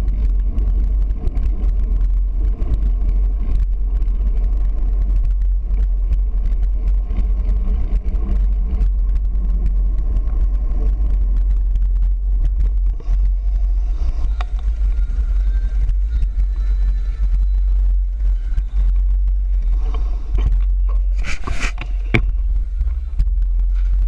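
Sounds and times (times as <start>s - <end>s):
wind rumbling on microphone: 0.0s - 24.0s.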